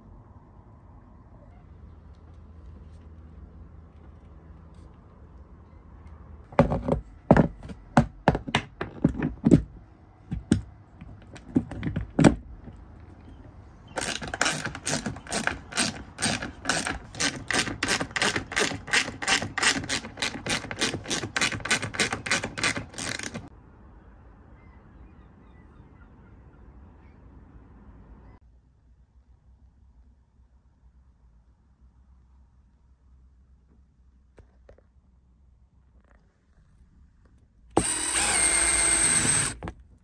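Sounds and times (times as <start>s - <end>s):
metal parts clunking: 14.0s - 23.5s
ratchet wrench clicking: 14.0s - 23.5s.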